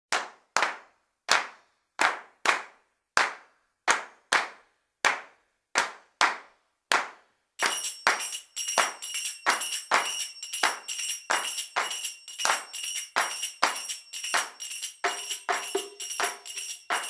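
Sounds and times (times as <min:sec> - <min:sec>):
hand claps: 0:00.1 - 0:17.0
tambourine jingling: 0:07.6 - 0:17.0.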